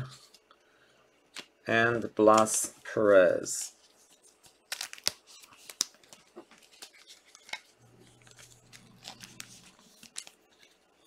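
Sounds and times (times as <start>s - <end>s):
cards flipping and slapping: 1.3s - 1.6s, 4.3s - 10.8s.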